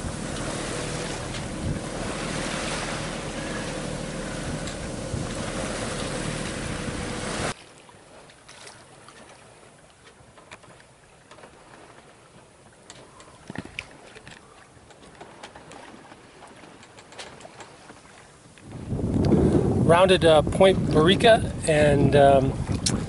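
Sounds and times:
wind on microphone: 0.0 - 7.6, 18.6 - 23.0
water lapping and splashing: 0.0 - 23.0
water rushing along hull: 0.0 - 23.0.

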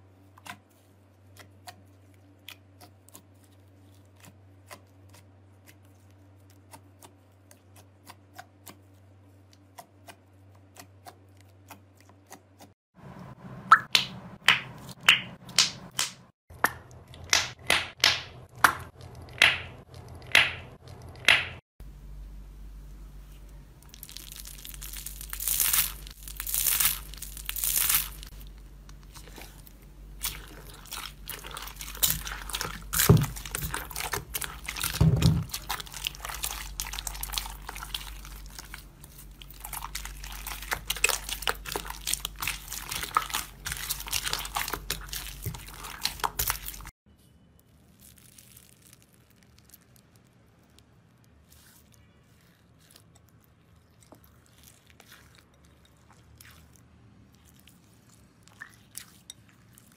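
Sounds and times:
slime crackling and squelching: 23.8 - 47.0, 47.6 - 59.9
foam beads rustling: 47.7 - 53.0.

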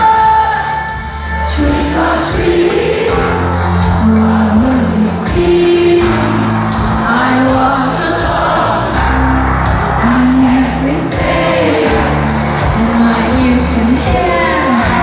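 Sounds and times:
live band drums and heavy bass: 0.0 - 15.0.

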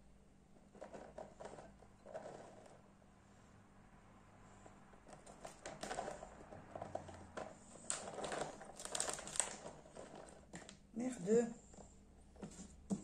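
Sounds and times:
plastic bag crinkling: 5.4 - 10.9.

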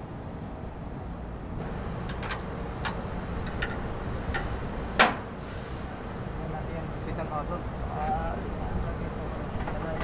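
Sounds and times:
steady low rumble: 1.3 - 10.0
sharp metallic clicks and taps: 2.0 - 5.3.

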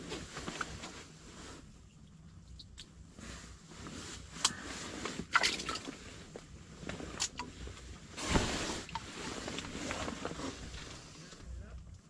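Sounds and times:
jacket sleeve rustle: 8.1 - 11.3.

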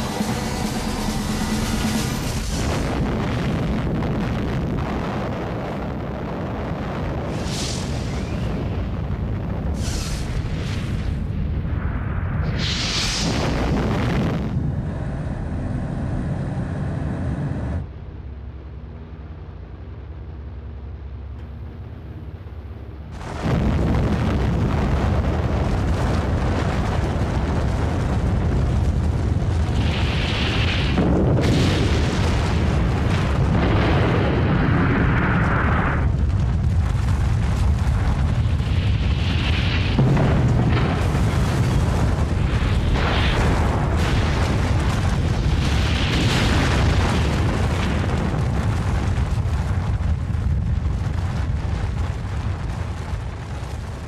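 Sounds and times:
rushing hissing blast noise: 0.0 - 3.5, 7.3 - 8.7, 9.6 - 11.0, 11.8 - 14.6
explosion rumble: 0.0 - 17.9, 23.1 - 54.0.

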